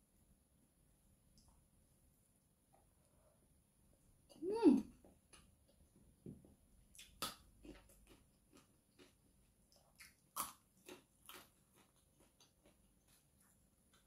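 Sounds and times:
person chewing crunchy food: 6.9s - 14.0s.

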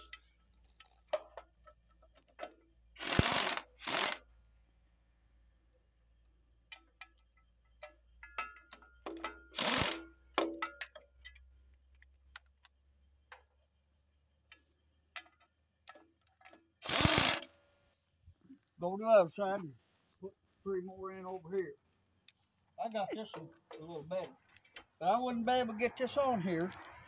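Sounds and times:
cordless power driver spinning: 3.0s - 4.2s, 9.6s - 10.0s, 16.8s - 17.5s
metal clicks of socket and bolts: 6.7s - 13.5s, 14.4s - 17.5s, 26.6s - 27.0s.

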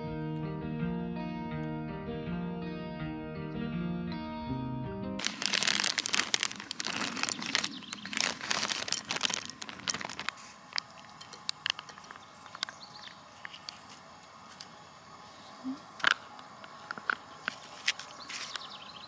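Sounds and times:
guitar music: 0.0s - 5.2s
wet food squeezed from pouch: 5.2s - 12.6s
dog kibble pouring into glass: 5.2s - 12.7s.

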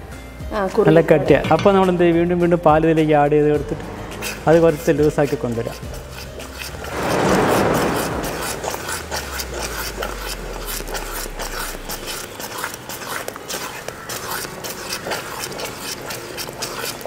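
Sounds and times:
wooden spatula scraping a pot: 4.0s - 17.0s.

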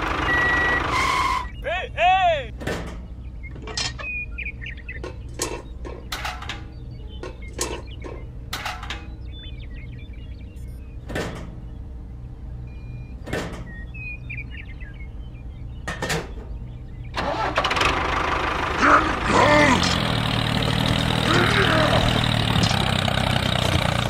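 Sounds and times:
steady low hum: 1.4s - 17.2s.

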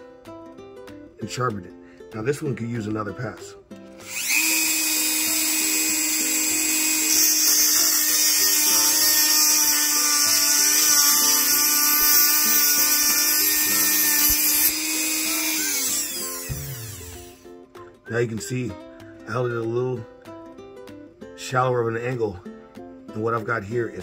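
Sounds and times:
rotary tool grinding metal: 4.0s - 17.4s.

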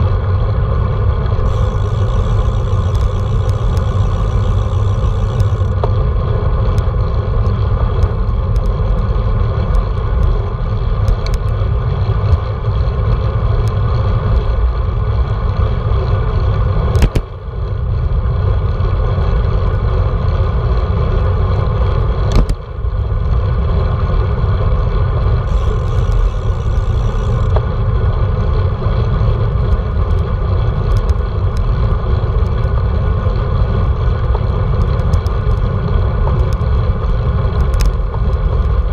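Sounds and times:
tyre road noise: 0.0s - 38.9s.

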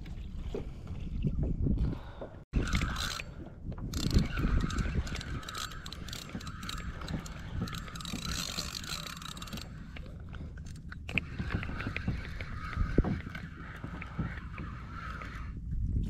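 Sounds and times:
fishing reel gears whirring: 2.6s - 15.4s.

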